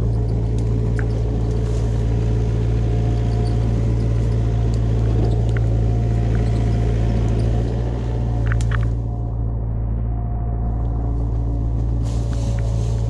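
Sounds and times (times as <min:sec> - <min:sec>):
engine droning steadily: 0:00.0 - 0:13.0
faint clicks: 0:04.1 - 0:07.5, 0:08.3 - 0:09.0.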